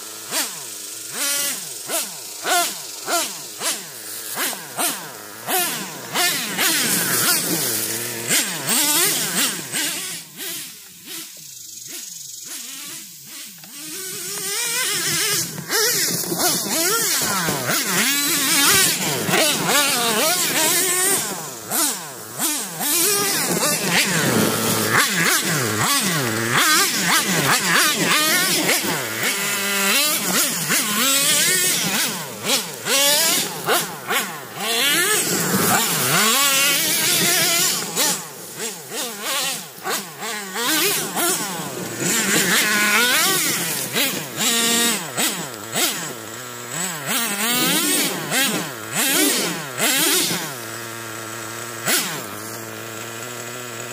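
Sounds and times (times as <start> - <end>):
rc truck engine revving: 0.0 - 53.9.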